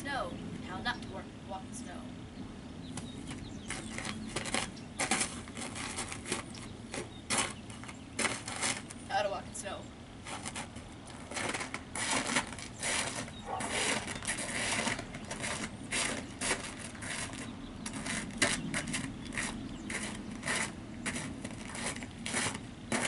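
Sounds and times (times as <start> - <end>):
boots crunching on snow: 3.7 - 9.0, 10.3 - 23.0.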